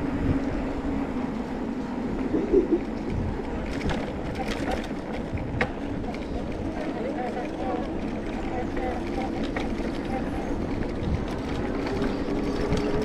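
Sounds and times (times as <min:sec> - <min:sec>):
low street rumble: 0:00.0 - 0:13.0
vehicle engine hum: 0:00.0 - 0:13.0.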